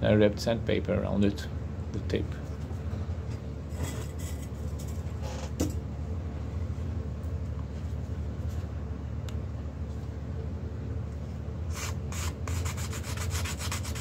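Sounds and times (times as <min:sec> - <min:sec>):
low background hum: 0:00.0 - 0:14.0.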